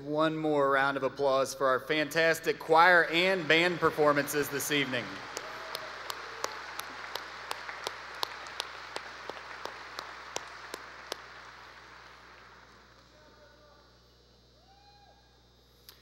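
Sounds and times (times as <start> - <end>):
large audience applauding: 2.7 - 13.6.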